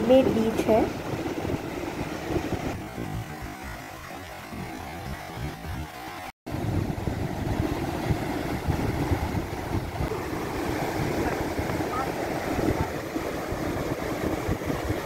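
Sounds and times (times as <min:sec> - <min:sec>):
wind buffeting microphone: 0:00.0 - 0:15.0
sea surf breaking over rocks: 0:06.5 - 0:15.0.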